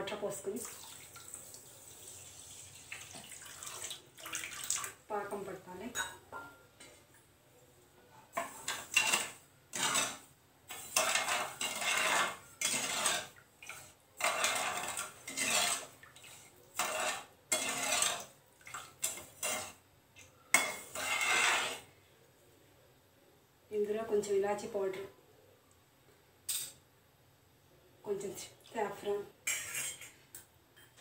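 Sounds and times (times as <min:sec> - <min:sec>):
metal ladle scraping pan: 0:08.3 - 0:18.4, 0:19.0 - 0:19.8, 0:20.5 - 0:21.9, 0:29.4 - 0:30.2.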